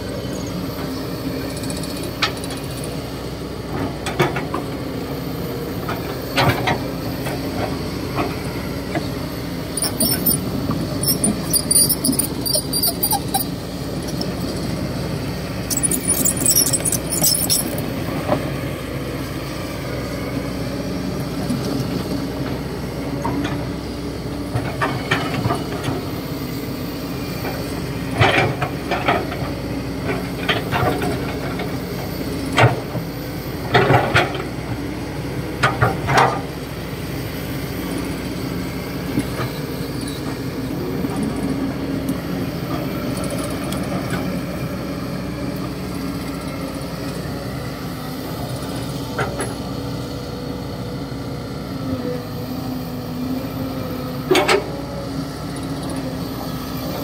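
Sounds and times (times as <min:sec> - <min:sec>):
excavator diesel engine running: 0:00.0 - 0:57.0
bucket clanking and scraping dirt: 0:15.7 - 0:17.8.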